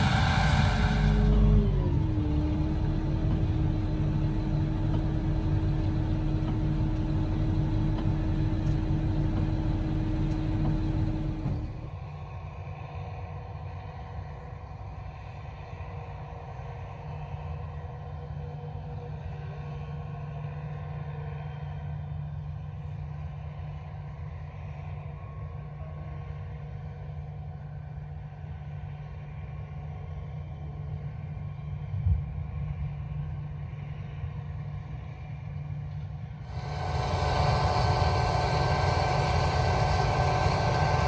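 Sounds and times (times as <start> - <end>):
distant farm machinery rumble: 0.0 - 13.9, 31.6 - 41.0
combine harvester engine drone: 0.0 - 41.0.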